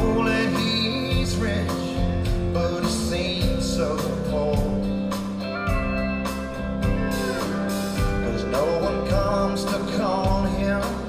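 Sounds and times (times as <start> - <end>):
live country band playing: 0.0 - 11.0
drum beat: 4.6 - 11.0.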